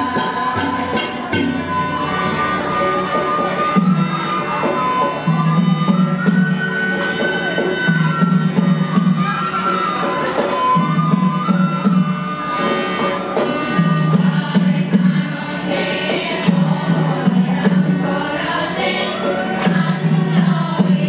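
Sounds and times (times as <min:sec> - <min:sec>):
women's choir singing: 0:00.0 - 0:05.6, 0:12.6 - 0:21.0
harmonium: 0:00.0 - 0:21.0
tabla: 0:00.0 - 0:21.0.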